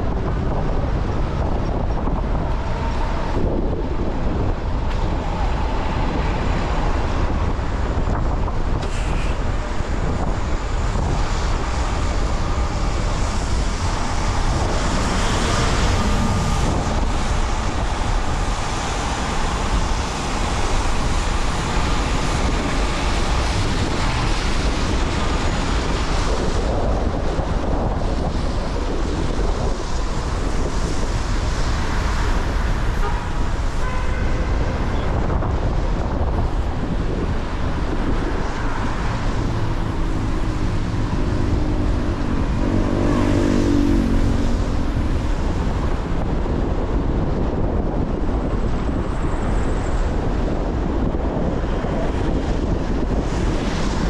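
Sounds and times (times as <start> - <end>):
low rumble: 0.0 - 33.5
road noise: 0.0 - 54.0
wind on microphone: 0.0 - 54.0.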